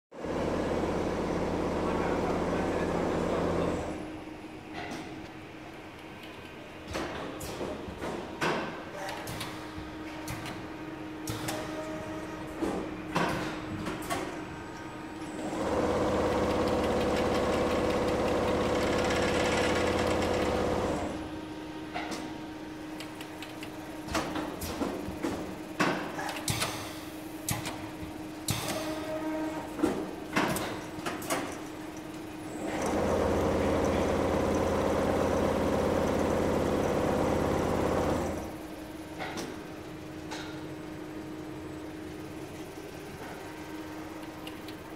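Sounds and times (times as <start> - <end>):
steady machine hum: 0.2 - 7.0, 9.6 - 44.9
quilting machine stitching: 32.6 - 38.5.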